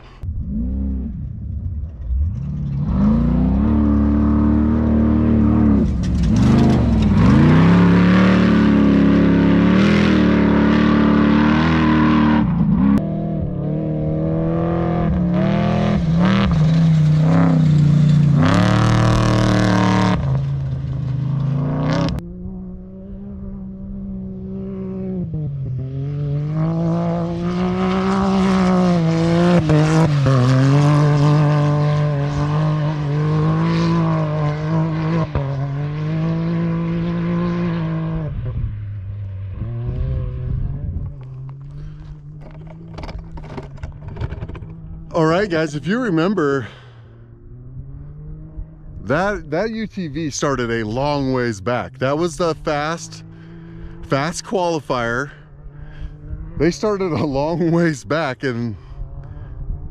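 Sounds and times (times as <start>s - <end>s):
engine revving: 0.0s - 59.9s.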